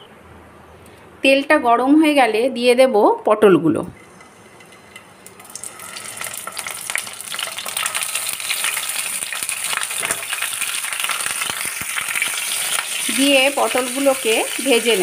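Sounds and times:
oil sizzling and crackling: 4.0s - 15.0s.

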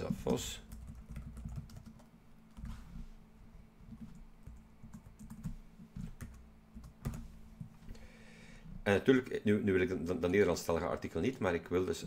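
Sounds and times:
low steady hum: 0.0s - 12.0s
computer keyboard typing: 0.1s - 2.7s, 3.9s - 7.3s.

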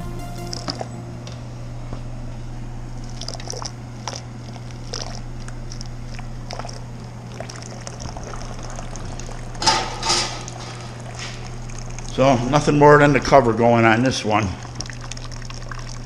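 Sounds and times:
steady low hum: 0.0s - 16.0s
liquid trickling and splashing: 3.1s - 9.7s, 14.4s - 16.0s.

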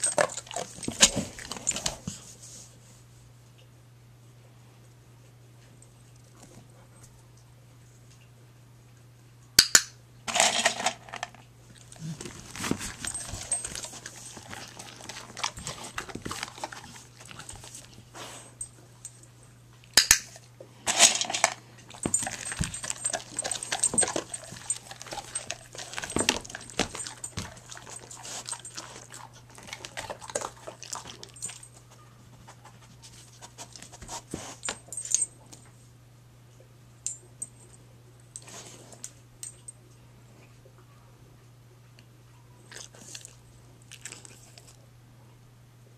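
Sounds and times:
dog crunching kibble: 0.0s - 2.0s, 10.3s - 18.2s, 19.8s - 34.7s, 42.7s - 44.8s
kibble clattering on wood floor: 10.3s - 11.4s, 20.9s - 31.7s.

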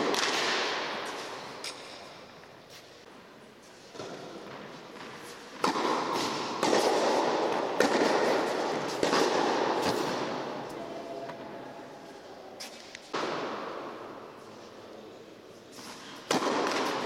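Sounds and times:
tennis racquet strikes: 0.0s - 2.2s, 3.9s - 10.7s, 12.6s - 14.0s, 15.8s - 17.0s
tennis ball bouncing: 3.9s - 10.1s, 16.2s - 17.0s.

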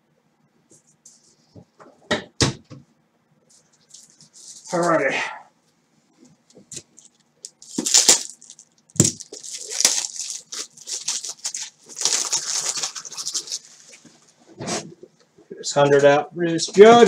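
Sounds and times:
plastic rustling and rattling: 3.5s - 5.0s, 6.5s - 15.0s.

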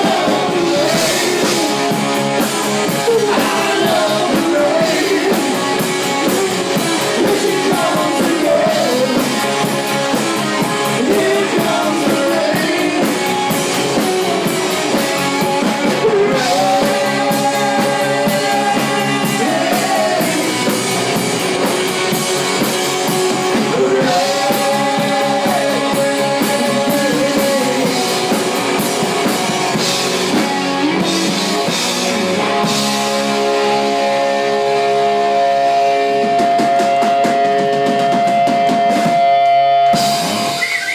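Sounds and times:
drum kit: 0.0s - 40.9s
electric bass: 0.0s - 40.9s
electric guitar: 0.0s - 40.9s.

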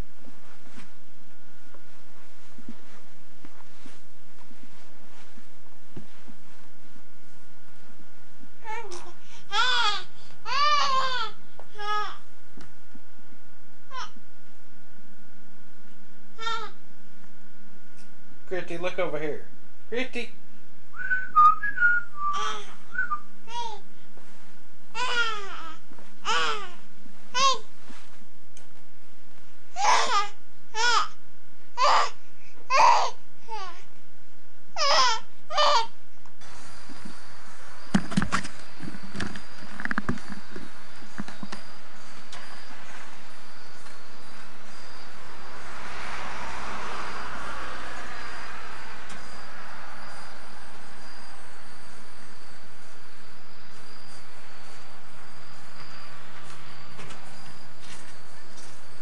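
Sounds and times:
infant cooing and babbling: 8.6s - 12.2s, 16.4s - 16.8s, 23.5s - 23.9s, 25.0s - 26.8s, 27.4s - 27.7s, 29.8s - 31.2s, 31.8s - 33.9s, 34.8s - 36.0s
crickets trilling: 34.8s - 59.0s
steady hiss: 36.4s - 59.0s.

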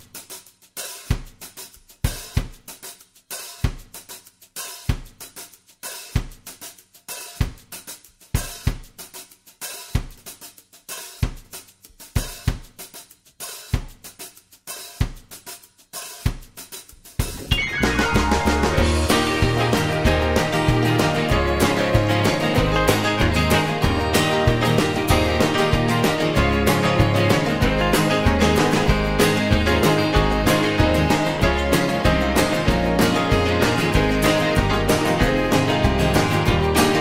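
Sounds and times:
drum beat music: 0.0s - 37.0s.

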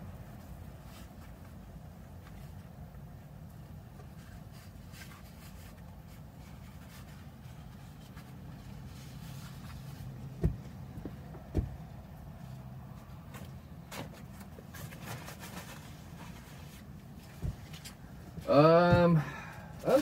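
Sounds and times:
dull thumps: 10.3s - 12.0s.

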